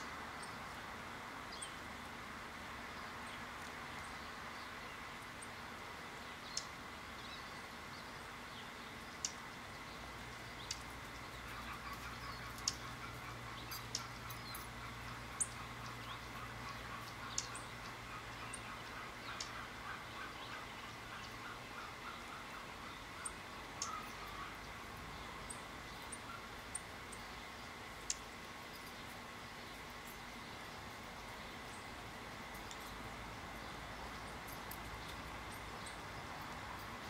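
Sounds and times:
background hiss: 0:00.0 - 0:37.0
thin high bird calls: 0:08.6 - 0:37.0.

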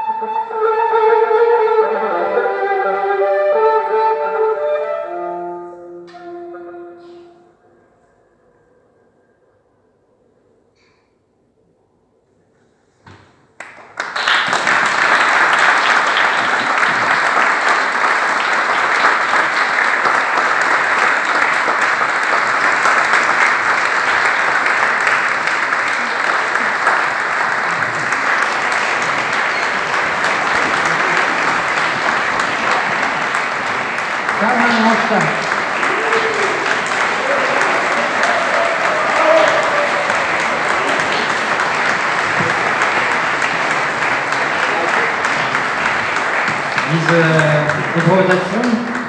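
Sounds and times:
audience applauding: 0:13.6 - 0:49.0.

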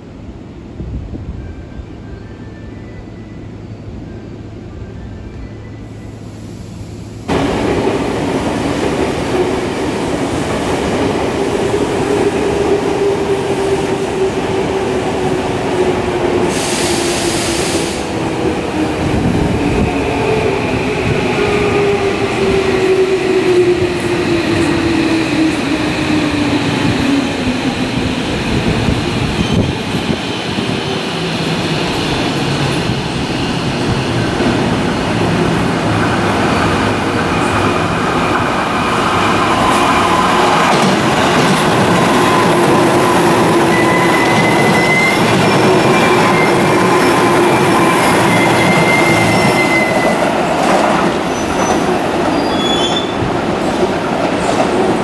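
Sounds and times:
high wheel squeal: 0:42.2 - 0:50.3, 0:51.3 - 0:53.3.

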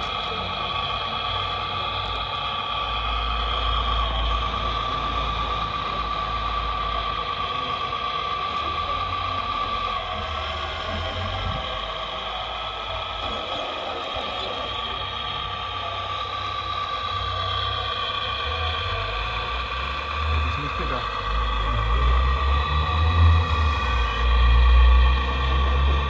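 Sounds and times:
hydraulic pump whining: 0:00.0 - 0:26.0.

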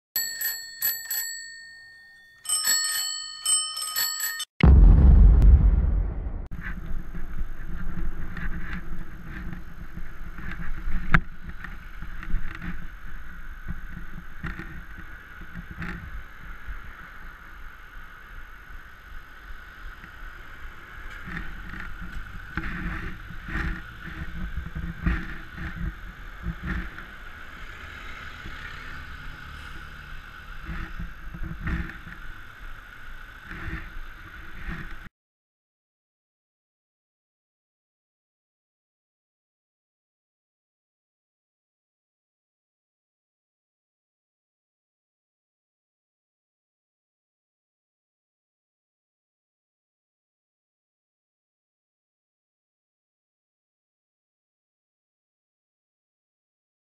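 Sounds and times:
rumble of passing vehicles: 0:06.6 - 0:35.1.

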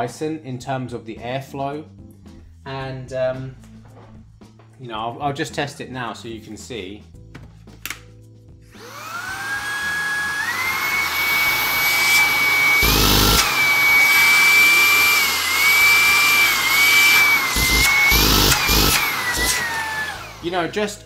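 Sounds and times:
vacuum motor whine: 0:08.7 - 0:20.8.

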